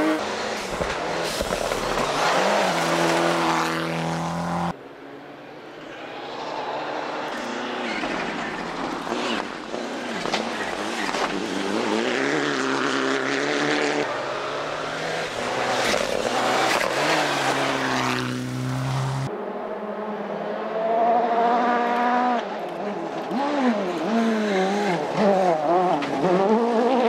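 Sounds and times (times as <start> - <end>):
rally car engine revving: 7.0 - 19.3, 20.0 - 27.0.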